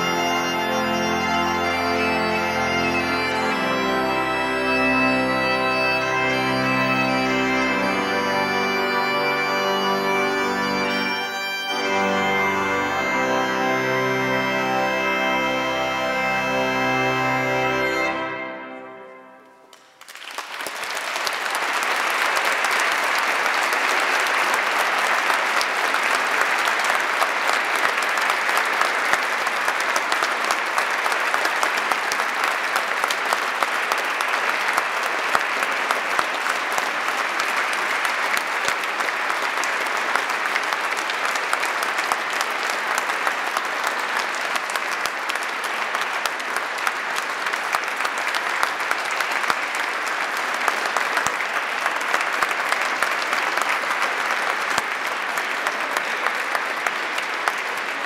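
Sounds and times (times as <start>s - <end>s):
bagpipe and organ music: 0.0s - 19.7s
congregation applause: 0.0s - 58.0s.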